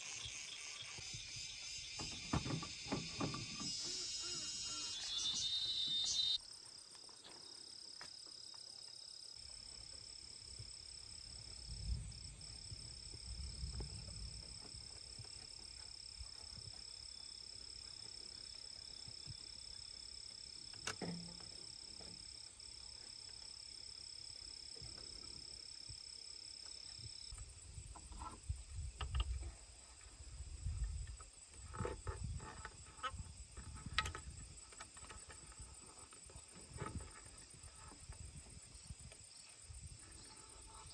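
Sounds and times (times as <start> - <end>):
high-pitched insect chirring: 0.0 - 6.4
knocks and scrapes on bamboo poles: 1.9 - 4.6, 20.8 - 22.3, 27.8 - 38.6.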